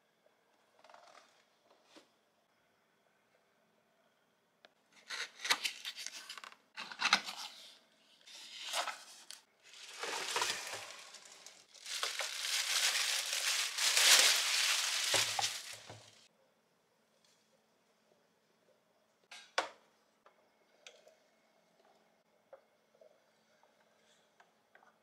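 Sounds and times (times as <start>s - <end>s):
plastic bag crinkling: 9.7s - 16.3s.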